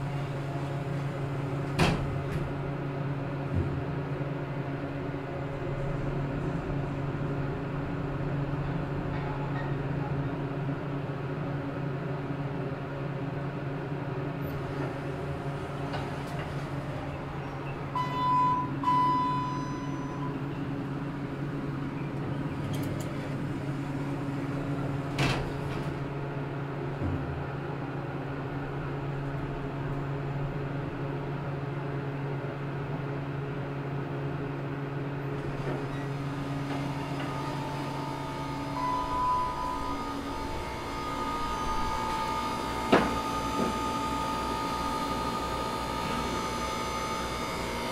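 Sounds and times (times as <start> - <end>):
low machine hum: 0.0 - 47.9
short electronic beeps: 18.0 - 20.3, 38.7 - 42.4.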